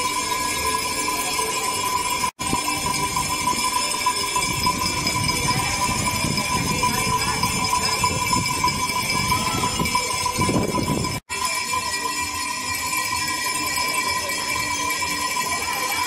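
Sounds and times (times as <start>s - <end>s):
small handbells jangling: 0.0s - 16.0s.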